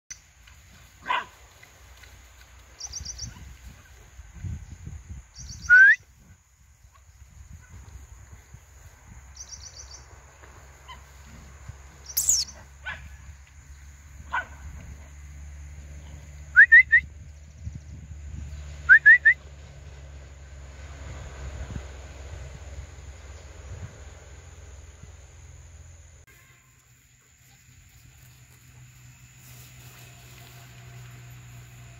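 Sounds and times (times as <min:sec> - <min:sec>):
downward-sweeping bird whistle: 0:05.4 - 0:06.1, 0:16.5 - 0:17.1, 0:18.8 - 0:19.4
quick rising whistled bird notes: 0:12.1 - 0:12.6.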